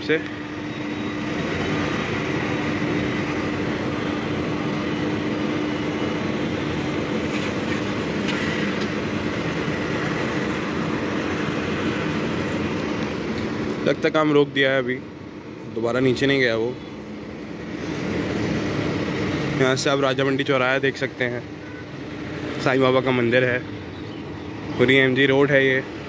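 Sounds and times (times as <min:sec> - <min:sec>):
construction site drone: 0:00.0 - 0:26.0
road traffic: 0:00.0 - 0:26.0.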